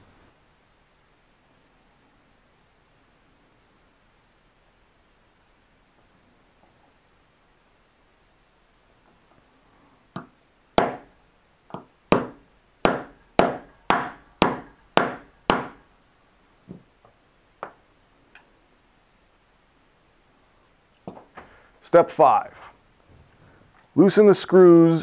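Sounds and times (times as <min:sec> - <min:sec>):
hammer tapping metal punch: 0:10.2 - 0:11.1, 0:11.7 - 0:15.8.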